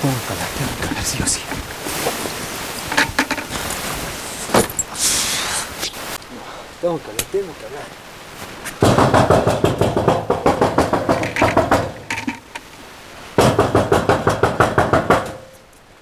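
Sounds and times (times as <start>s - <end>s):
hand banging on sheet-metal door: 8.8s - 12.3s, 13.4s - 15.5s
metal door rattling in frame: 8.8s - 12.5s, 13.4s - 15.5s.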